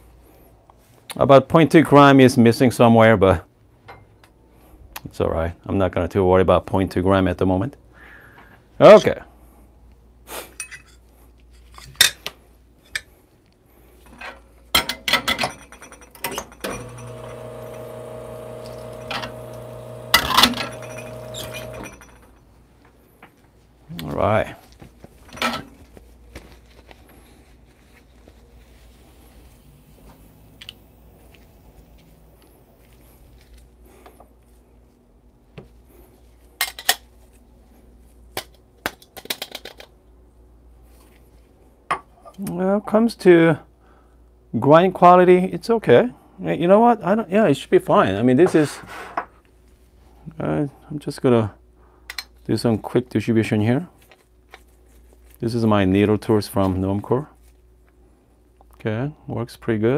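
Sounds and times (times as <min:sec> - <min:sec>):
metal cups and tools clinking: 0:10.6 - 0:11.0, 0:14.8 - 0:17.5, 0:18.6 - 0:22.4
espresso machine pump humming: 0:16.6 - 0:22.3.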